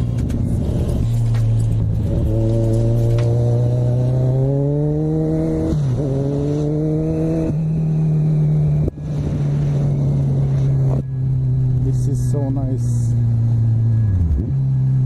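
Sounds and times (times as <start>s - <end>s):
motorcycle engine pulling hard: 0.0s - 8.0s
wind rush: 8.9s - 11.1s.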